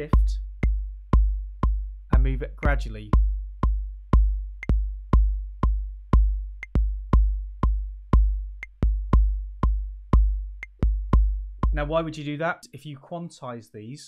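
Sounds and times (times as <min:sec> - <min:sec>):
kick drum pattern: 0:00.0 - 0:12.2.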